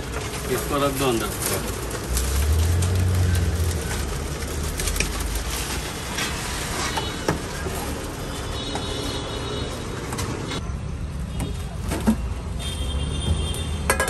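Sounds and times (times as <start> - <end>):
plastic bag crinkling: 0.0 - 9.5
street traffic: 0.0 - 14.0.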